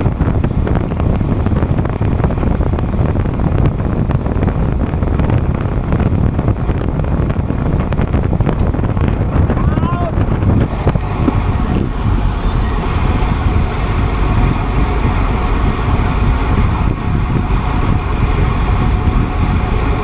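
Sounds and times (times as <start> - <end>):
wind buffeting microphone: 0.0 - 20.0
faint high chirping: 12.3 - 12.8.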